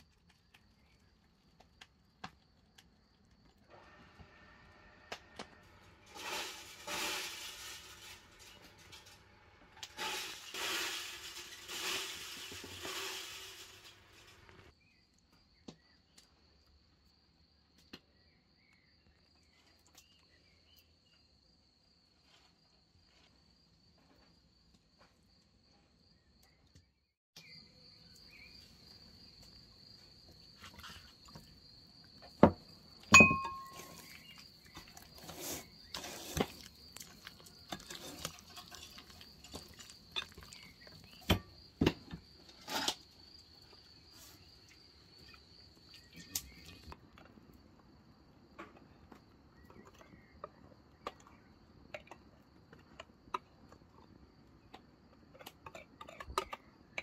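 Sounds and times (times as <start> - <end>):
crickets chirping: 5.7 - 26.7, 27.4 - 57.0
bursts of hissing noise: 5.8 - 14.7
kitchenware clinking: 33.1 - 34.2.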